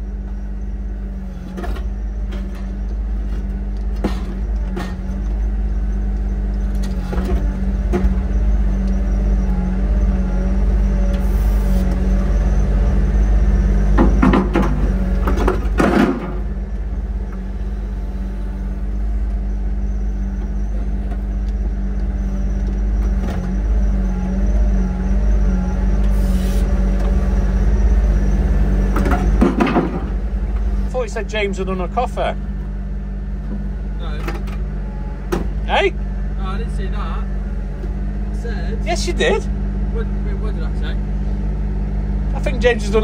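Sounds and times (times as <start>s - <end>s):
excavator diesel engine: 0.0s - 43.0s
knocks and rattles: 13.9s - 16.5s, 28.9s - 30.6s.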